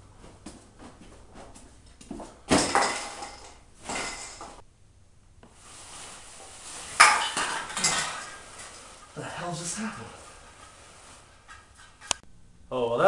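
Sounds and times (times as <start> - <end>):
scuffing and fabric rustling: 0.0 - 2.6, 5.5 - 12.0
blanket thrown back rustling: 5.5 - 11.4.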